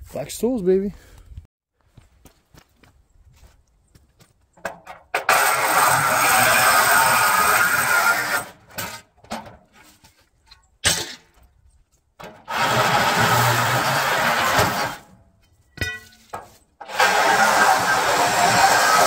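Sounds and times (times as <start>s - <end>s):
reciprocating saw cutting metal: 5.1s - 9.1s, 12.3s - 15.2s, 16.8s - 19.0s
sharp metal clank: 15.7s - 16.6s.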